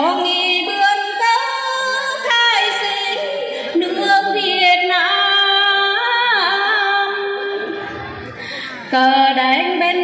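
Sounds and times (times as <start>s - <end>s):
woman singing folk song: 0.0s - 7.6s.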